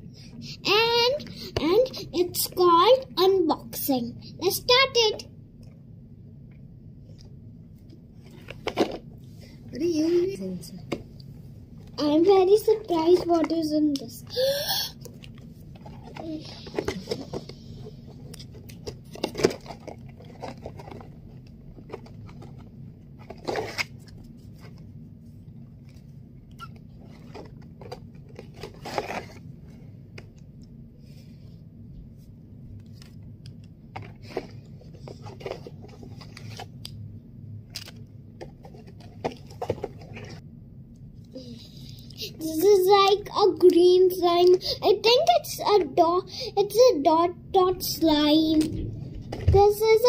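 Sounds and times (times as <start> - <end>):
steady low hum: 0.0 - 50.0
cardboard packaging rustling: 15.8 - 24.8, 27.0 - 29.4.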